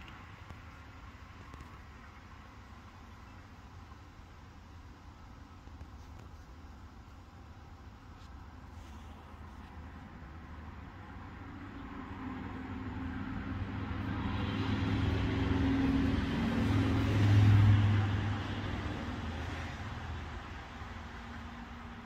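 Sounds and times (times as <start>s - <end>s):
vehicle passing by: 9.8s - 22.0s.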